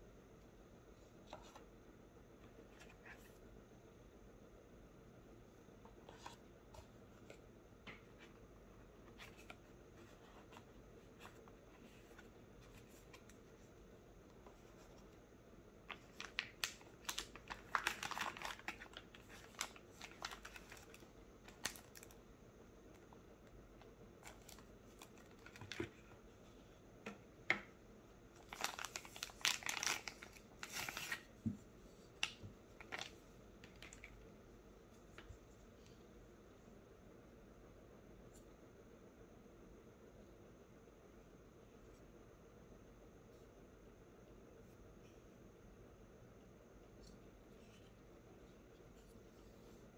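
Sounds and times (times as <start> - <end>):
plastic packaging crinkling: 15.9 - 22.2, 24.2 - 26.0, 28.4 - 31.3, 32.2 - 34.2.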